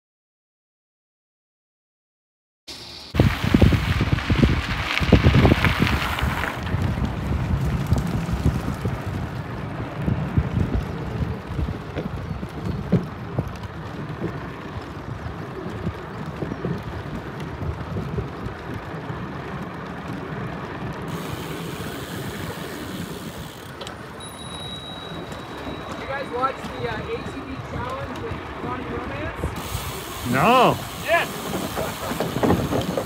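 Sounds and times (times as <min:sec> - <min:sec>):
wind noise on microphone: 0:03.1 - 0:23.7, 0:24.5 - 0:33.0
thin high tone: 0:24.2 - 0:27.4
hiss: 0:29.6 - 0:33.0.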